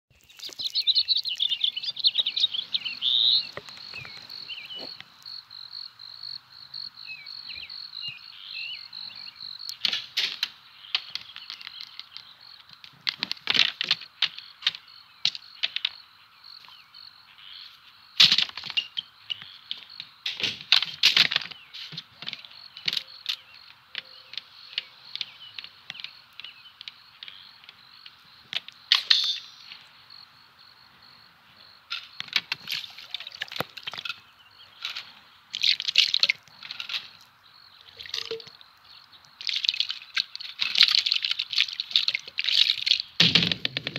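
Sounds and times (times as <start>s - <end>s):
bird-like chirps: 0.1s - 9.9s, 21.4s - 28.5s
high insect trill: 0.2s - 12.8s, 21.4s - 43.7s.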